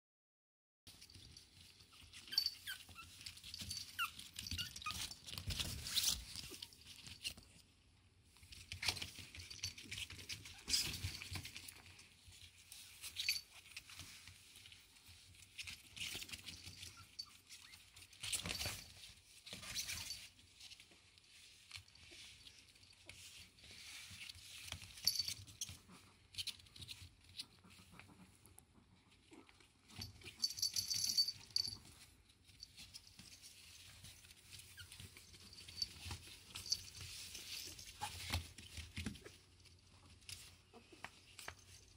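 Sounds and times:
paws scrabbling on a nylon mat: 0.9 - 7.6, 8.3 - 41.9
puppy squeaks: 1.8 - 6.7, 34.5 - 35.4.

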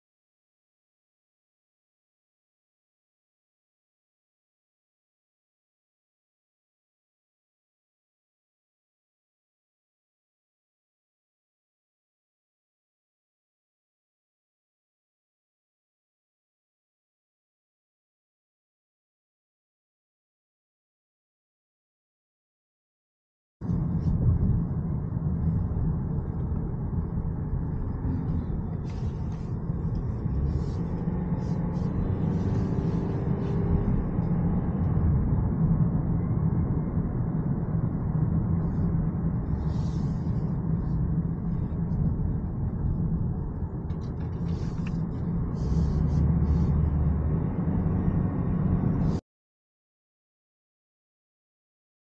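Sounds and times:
road and tyre noise in car: 23.6 - 49.2.

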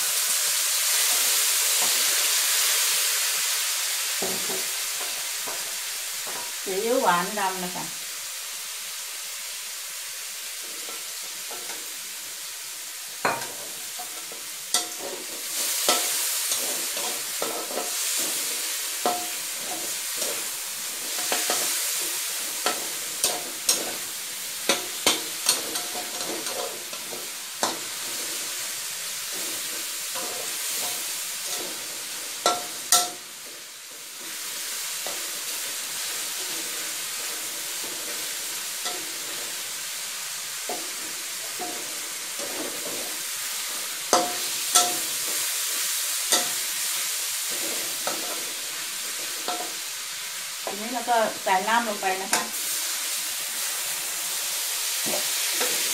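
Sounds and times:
meat sizzling in a wok: 0.0 - 55.9
metal spatula scraping a wok: 13.2 - 53.2.

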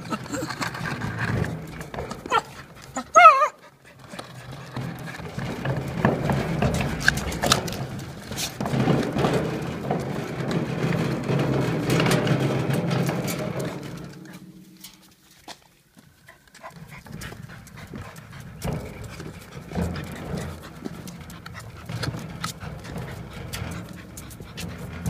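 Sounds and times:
dog growling: 0.0 - 8.0, 16.6 - 25.0
dog yelping: 2.3 - 3.7.

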